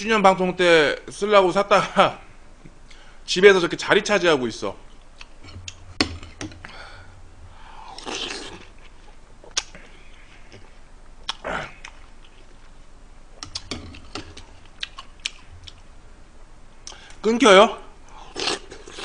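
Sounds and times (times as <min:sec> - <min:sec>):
chewing and wet mouth sounds: 0:07.9 - 0:12.8, 0:13.4 - 0:15.9.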